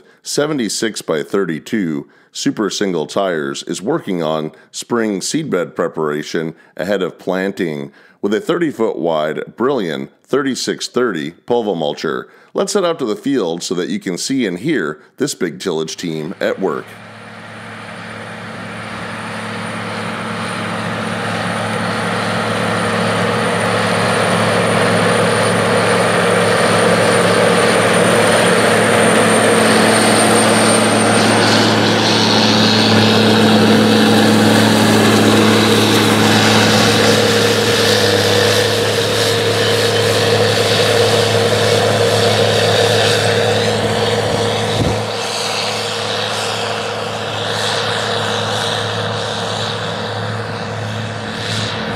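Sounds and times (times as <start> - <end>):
diesel tractor engine under load: 16.5 - 51.9.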